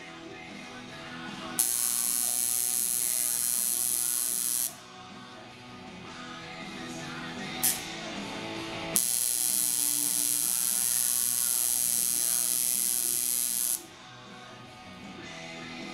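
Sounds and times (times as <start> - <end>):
background music: 0.0 - 15.9
tattoo machine buzzing: 1.6 - 4.8, 7.6 - 8.0, 9.0 - 13.8.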